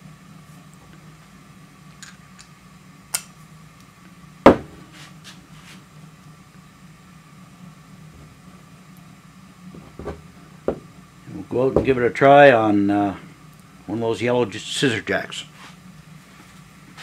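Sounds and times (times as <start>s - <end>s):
steady low hum: 0.0s - 17.0s
metal knock on bench: 10.0s - 10.9s.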